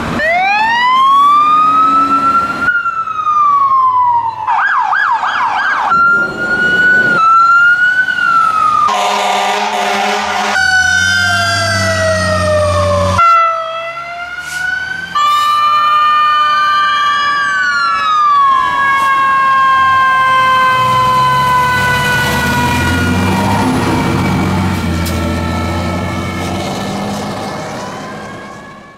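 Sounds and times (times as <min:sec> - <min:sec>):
emergency vehicle sirens wailing: 0:00.0 - 0:28.9
fire truck engine rumble: 0:00.0 - 0:28.9
air horn blast: 0:08.9 - 0:11.0, 0:13.2 - 0:13.6.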